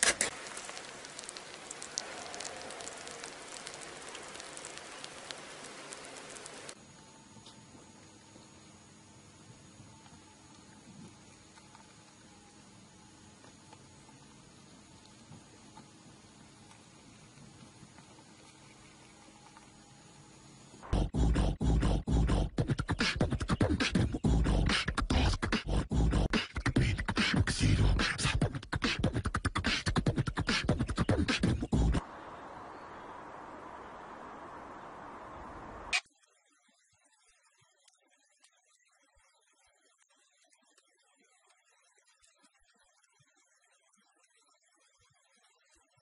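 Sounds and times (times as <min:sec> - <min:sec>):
faint steady hiss: 0:00.0 - 0:21.3, 0:31.4 - 0:46.0
beatboxing: 0:20.8 - 0:32.0.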